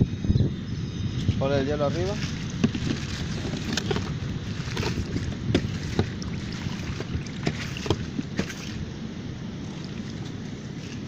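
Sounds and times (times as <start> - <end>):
plastic bag of ice crinkling: 2.0 - 5.8.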